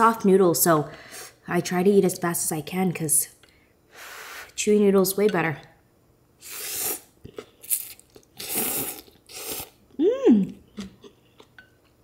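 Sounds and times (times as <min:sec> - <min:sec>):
noodles slurped: 0:06.4 - 0:09.8
person humming: 0:09.9 - 0:10.6.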